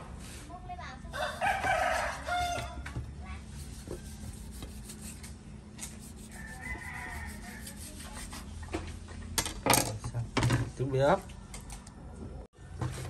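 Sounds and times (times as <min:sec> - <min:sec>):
knife scraping fish skin: 0:03.5 - 0:08.6.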